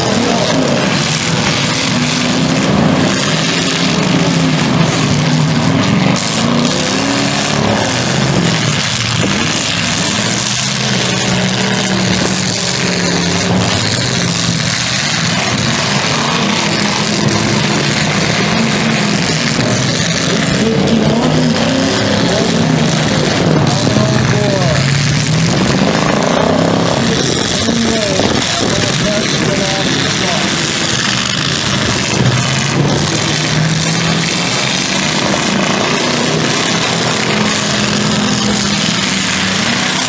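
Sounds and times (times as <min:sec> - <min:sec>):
car engines revving hard: 0:00.0 - 0:40.0.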